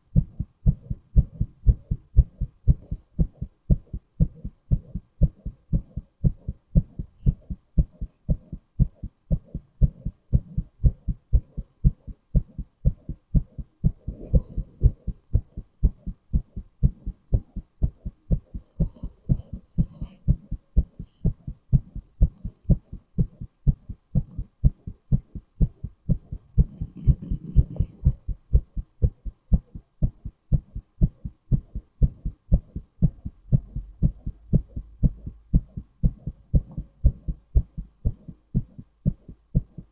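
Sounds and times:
heartbeat thumps: 0.0 - 39.9.

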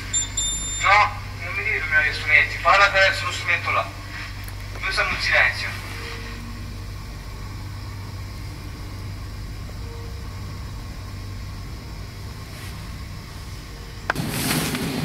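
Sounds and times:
faint short tone: 0.0 - 1.4, 5.7 - 14.1
low rumble: 0.0 - 15.0
faint hiss: 0.8 - 15.0.

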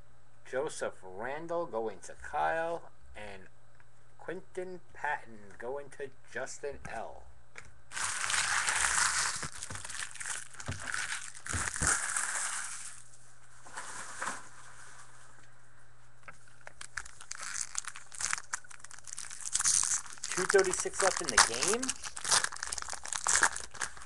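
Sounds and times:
wrapper crinkling and rustling: 7.9 - 15.0, 16.6 - 24.0.

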